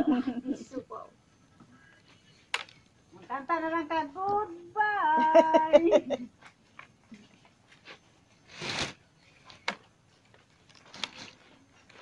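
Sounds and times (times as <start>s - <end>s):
palm leaves rustling: 6.5s - 12.0s.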